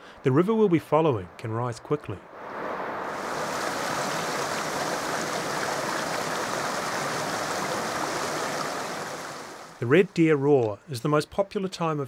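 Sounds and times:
water rushing over stones: 2.4s - 9.8s.

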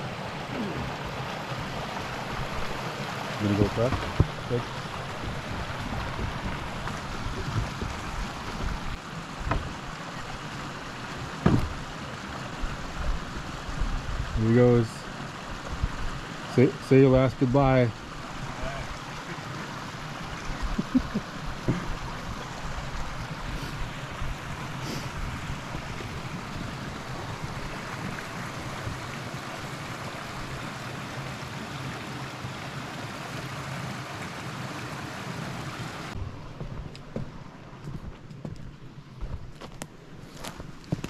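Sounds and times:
stream rushing: 0.0s - 41.0s
knocks: 11.4s - 11.8s.

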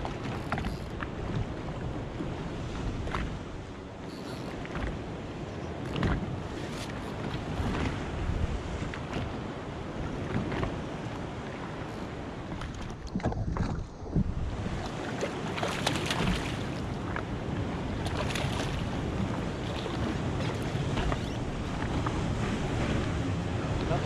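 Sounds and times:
water slapping against hull: 0.0s - 24.0s
wind buffeting microphone: 0.0s - 24.0s
fish thrashing in water: 14.9s - 16.8s.

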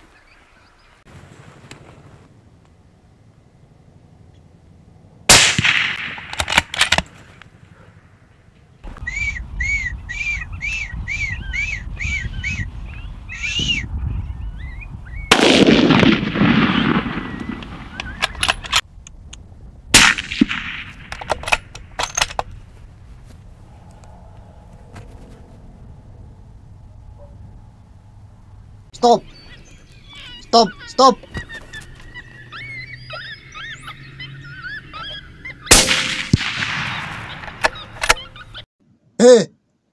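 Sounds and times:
rifle shots with echo: 5.3s - 7.0s, 15.3s - 18.7s, 19.9s - 21.7s, 35.7s - 37.6s
short high chirping calls: 9.0s - 15.3s, 29.2s - 35.7s, 36.9s - 38.6s
sharp clicks: 17.4s - 19.4s.

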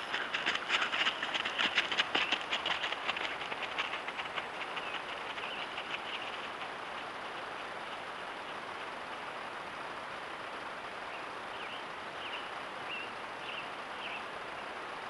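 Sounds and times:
footsteps crunching on gravel: 0.0s - 6.6s
steady hiss: 0.0s - 15.0s.

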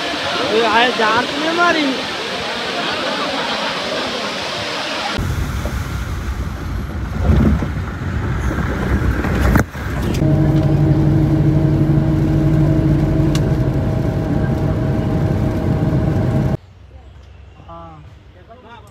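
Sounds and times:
jeep engine running: 7.7s - 16.6s.

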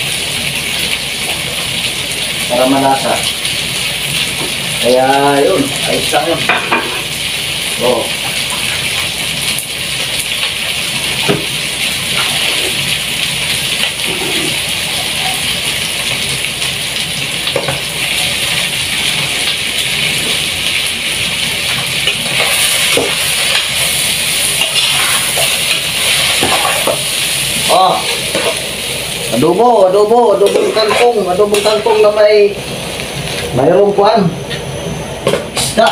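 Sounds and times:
food sizzling in a pot: 0.0s - 35.9s.

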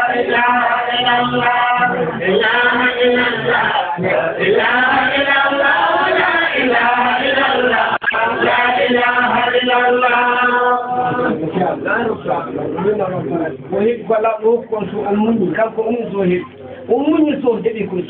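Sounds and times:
men chanting: 0.0s - 12.1s.

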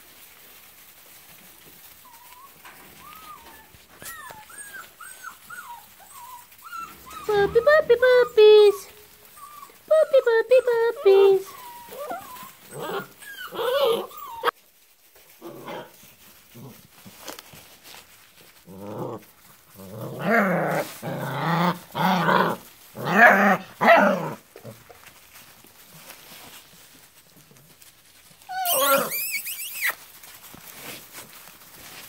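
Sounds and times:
puppies calling: 1.8s - 14.6s, 28.4s - 30.3s.

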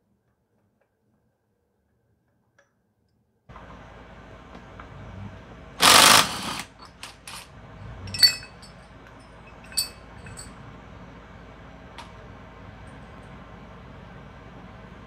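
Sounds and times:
impact wrench hammering: 5.8s - 7.4s
metallic clinks of nut and socket: 8.1s - 10.6s.

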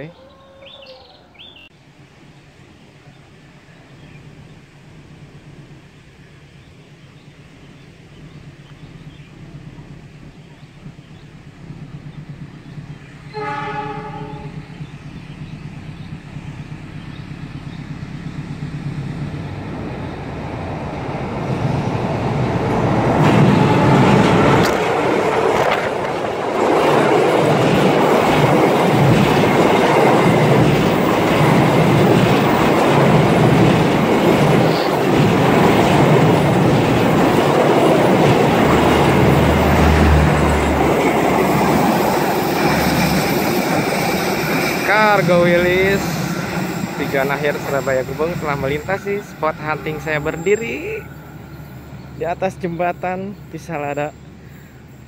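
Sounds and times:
train wheels clickety-clack: 22.0s - 50.1s.

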